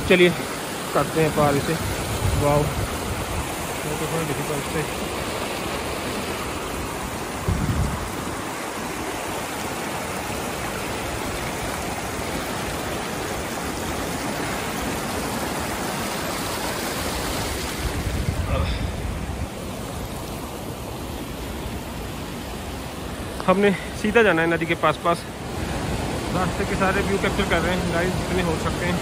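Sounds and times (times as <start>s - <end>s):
stream rushing: 0.0s - 29.0s
low thump: 7.4s - 8.0s.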